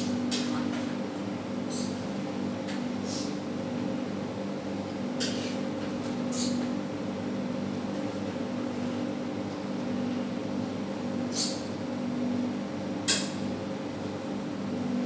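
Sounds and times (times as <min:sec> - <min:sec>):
range hood fan hum: 0:00.0 - 0:15.0.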